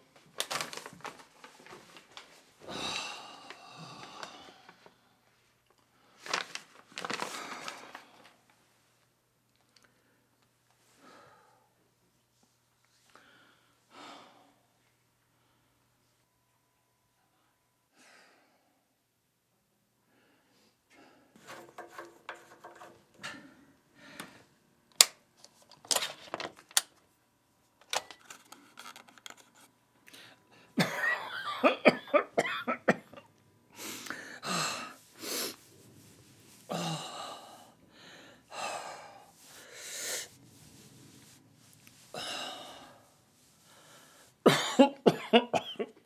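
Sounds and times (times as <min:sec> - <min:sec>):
clicks and handling sounds: 0:21.4 - 0:23.3, 0:24.9 - 0:27.1, 0:27.7 - 0:30.2
elderly man coughing: 0:30.8 - 0:33.3, 0:44.4 - 0:46.0.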